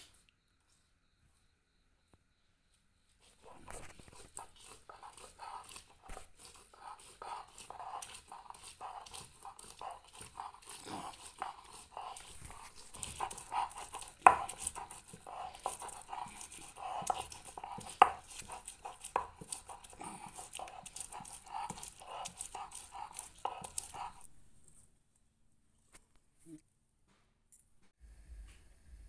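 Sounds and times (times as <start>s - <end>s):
stone roller scraping spice paste: 3.2s - 24.3s
stone knocking on stone: 13.0s - 16.0s.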